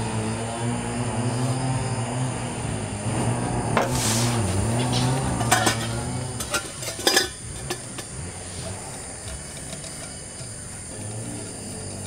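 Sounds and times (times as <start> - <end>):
high-pitched insect drone: 0.0 - 6.8, 7.4 - 12.0
sharp knocks and clatters: 3.8 - 10.6.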